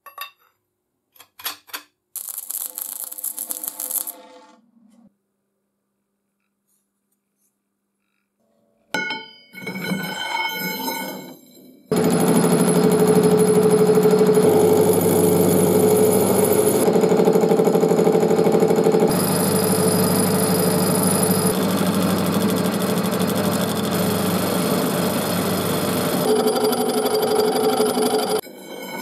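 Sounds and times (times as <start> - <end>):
metal lathe humming and whining: 12.0 - 29.0.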